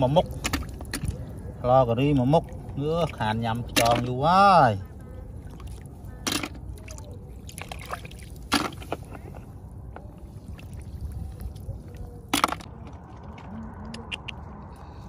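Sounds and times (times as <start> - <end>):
shallow water splashing: 0.0 - 13.6
steady low rumble: 4.8 - 15.0.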